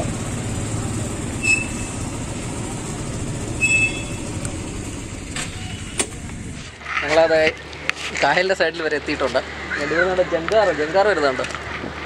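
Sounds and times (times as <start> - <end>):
motor scooter engine running: 0.0 - 6.8
short high squeaks: 1.3 - 2.3, 3.4 - 4.4.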